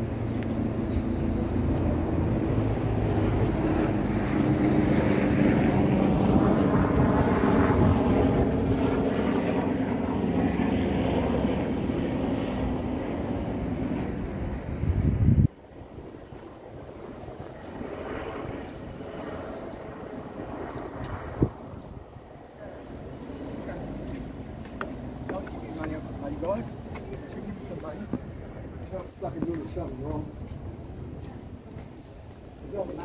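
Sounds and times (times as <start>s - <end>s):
engine drone: 0.0s - 33.0s.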